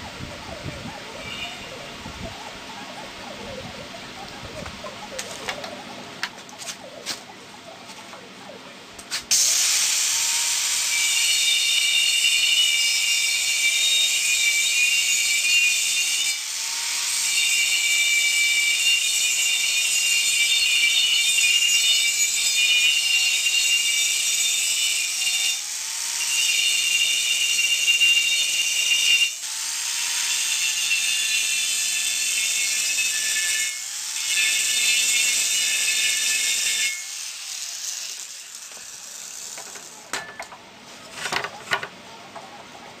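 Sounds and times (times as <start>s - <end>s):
angle grinder cutting steel: 9.1s - 40.4s.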